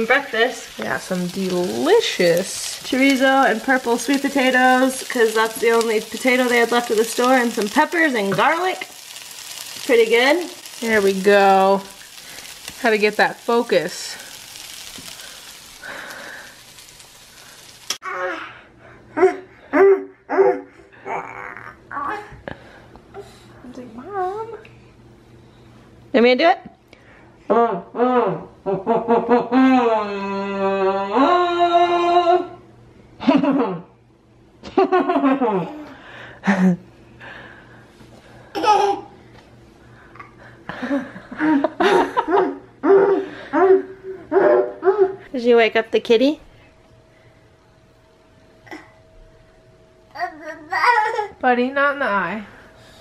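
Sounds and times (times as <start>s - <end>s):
food sizzling in a frying pan: 0.0s - 18.0s
baby laughing and babbling: 18.0s - 18.6s, 19.2s - 22.4s, 38.5s - 39.2s, 50.2s - 51.4s.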